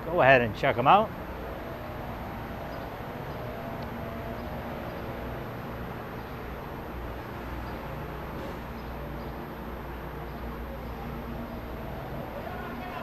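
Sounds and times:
distant traffic hum: 0.0s - 13.0s.

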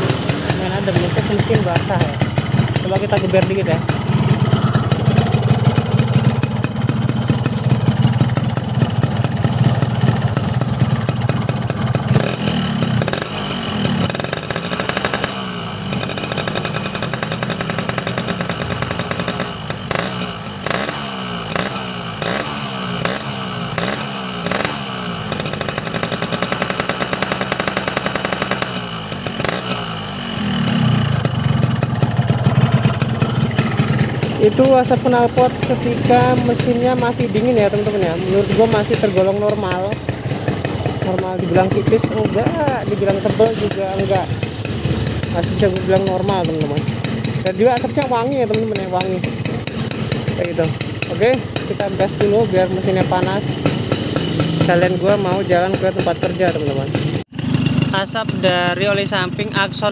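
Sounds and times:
motorcycle engine idling and revving: 0.0s - 59.9s.

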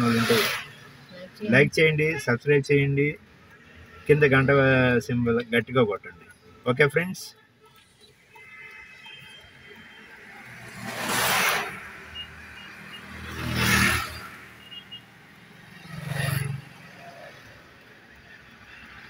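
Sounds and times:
vehicles passing whoosh: 0.0s - 2.2s, 7.8s - 19.0s.

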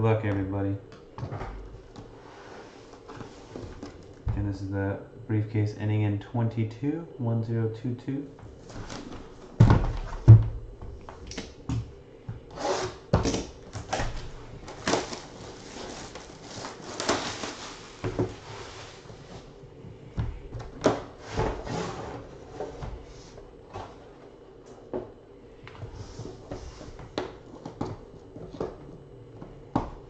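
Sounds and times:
box thumps: 8.8s - 12.5s
plastic wrap crinkling: 13.2s - 19.4s.

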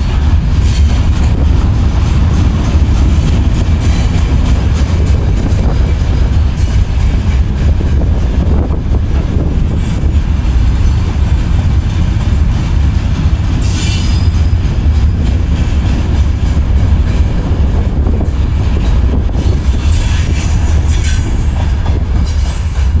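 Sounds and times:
freight train rumbling past: 0.0s - 23.0s
train wheel squeals: 13.6s - 23.0s.

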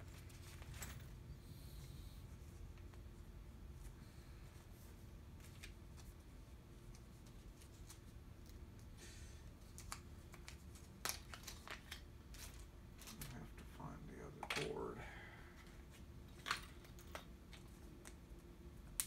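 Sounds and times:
clicks and rustles of plastic packaging: 9.6s - 14.8s.

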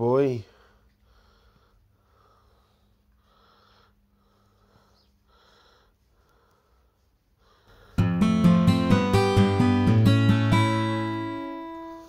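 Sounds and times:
faint even breathing: 0.4s - 8.2s.

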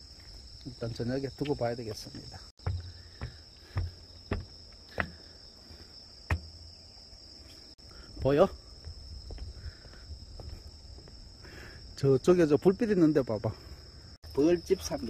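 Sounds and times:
footsteps on wooden deck: 0.0s - 11.3s
crickets and insects chirring: 0.0s - 15.0s.

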